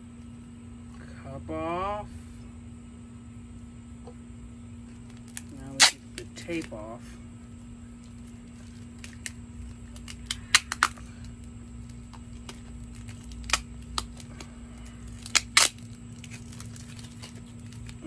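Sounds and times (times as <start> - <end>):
tape and plastic wrap peeling: 4.8 - 6.8, 7.6 - 18.0.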